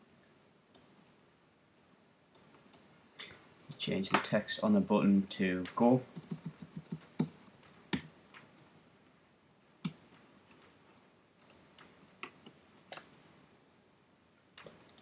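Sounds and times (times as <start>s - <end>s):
mouse clicks: 11.4s - 13.1s.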